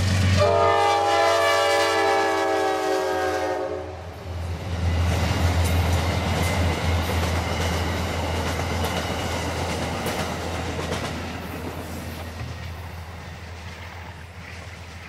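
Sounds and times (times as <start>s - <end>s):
passenger train rolling past: 0.0s - 15.0s.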